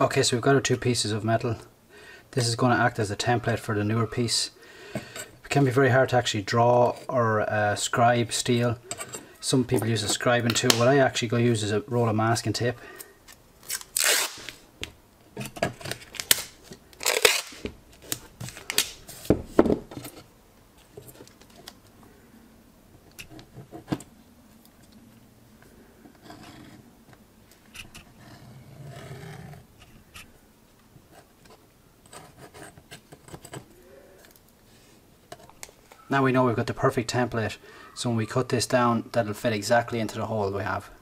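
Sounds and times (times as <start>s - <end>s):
masking tape ripping off roll: 13.6s - 14.7s, 15.9s - 19.1s
ballpoint pen scratching: 32.1s - 33.6s.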